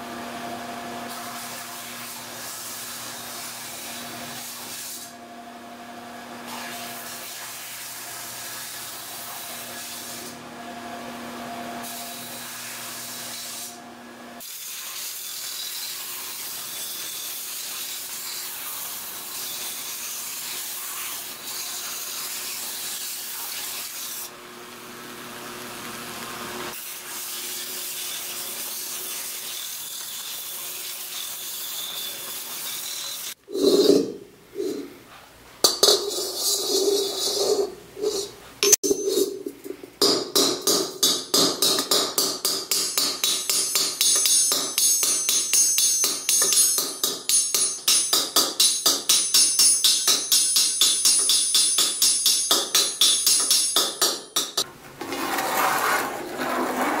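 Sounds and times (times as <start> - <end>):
metal grinding on belt sander: 55.0 - 57.0.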